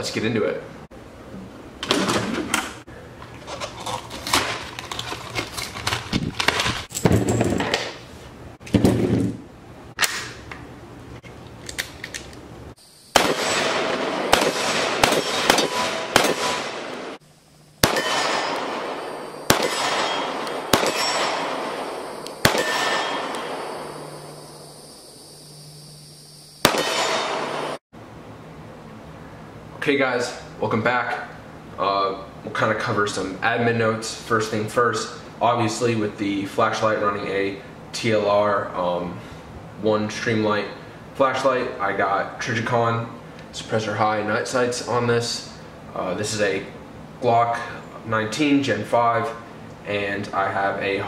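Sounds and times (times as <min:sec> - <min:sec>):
box packaging rattling: 0:03.4 - 0:07.6
echoing pistol shots: 0:13.1 - 0:17.2, 0:17.8 - 0:24.5, 0:26.6 - 0:27.8.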